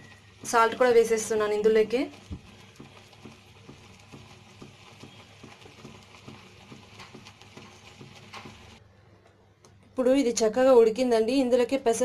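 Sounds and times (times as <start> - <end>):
soft bubbling pops: 2.0 - 8.8.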